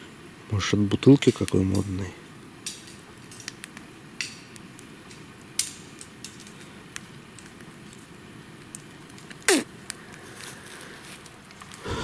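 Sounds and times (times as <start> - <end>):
small hard objects clicking: 2.6 - 10.6.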